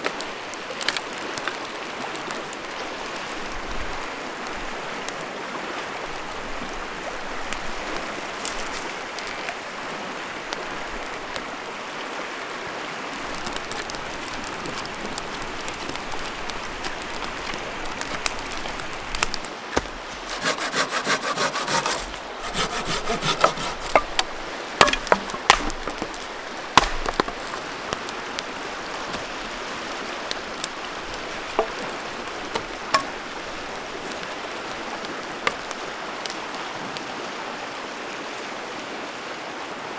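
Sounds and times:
river rapids rushing: 4.7 - 39.9
sticks cracking: 16.8 - 29.5, 30.2 - 35.8
rasping strokes on firewood: 19.2 - 27.7, 31.5 - 33.3, 35.4 - 35.8.

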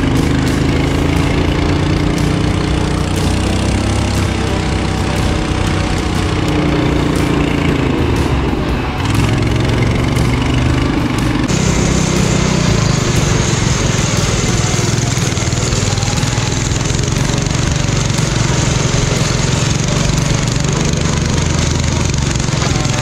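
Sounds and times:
lawn mower engine running: 0.0 - 23.0.

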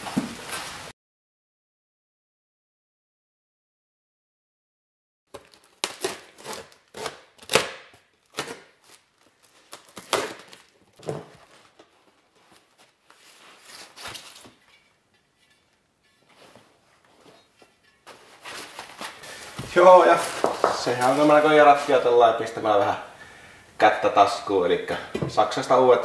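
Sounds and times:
knife cutting tape and cardboard: 5.3 - 11.6
packing paper rustling: 5.3 - 14.6, 18.1 - 22.1.

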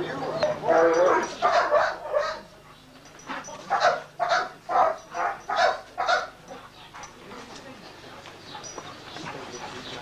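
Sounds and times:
dog barking: 0.6 - 2.5, 3.7 - 6.4.

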